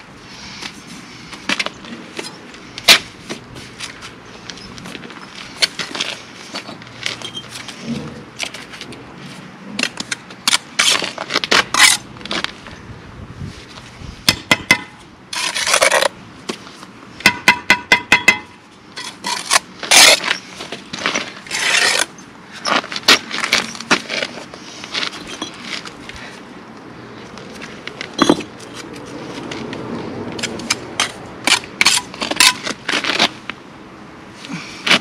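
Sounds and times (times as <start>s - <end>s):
trowel scraping mortar: 9.9s - 12.0s, 15.3s - 16.1s, 19.0s - 20.4s, 21.0s - 24.5s, 30.4s - 33.4s
trowel tapping bricks: 17.2s - 20.3s, 30.4s - 32.7s.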